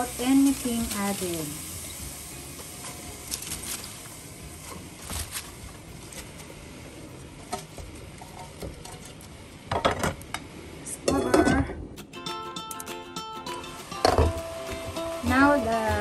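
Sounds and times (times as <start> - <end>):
metal colander and pot knocking: 14.0 - 14.4.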